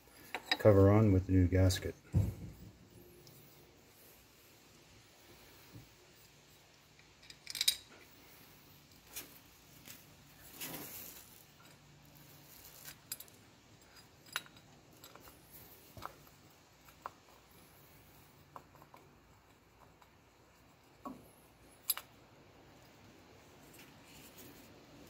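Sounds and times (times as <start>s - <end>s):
metallic clicks and clinks: 0.1s - 0.7s, 6.7s - 8.2s, 12.6s - 17.1s.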